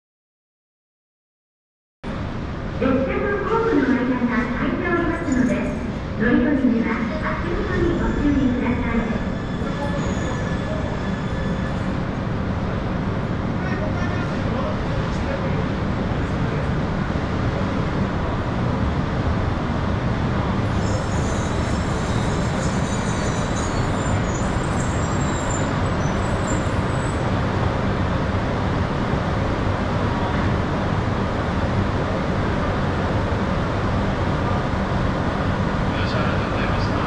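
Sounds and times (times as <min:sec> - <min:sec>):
train running noise: 0:02.1 - 0:37.0
faint high squeals: 0:07.6 - 0:12.0, 0:20.7 - 0:27.5.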